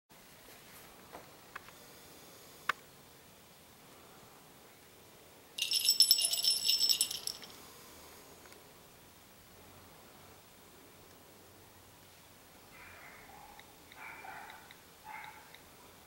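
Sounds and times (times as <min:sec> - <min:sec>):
bright jingling rattle: 0:05.6 - 0:07.6.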